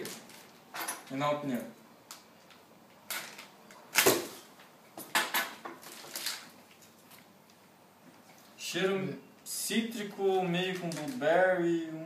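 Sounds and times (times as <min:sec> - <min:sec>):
plastic packaging crinkling: 0:05.8 - 0:07.3.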